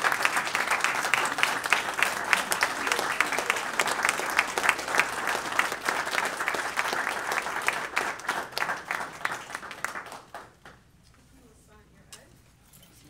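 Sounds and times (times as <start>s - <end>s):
roomful of people applauding: 0.0s - 11.0s.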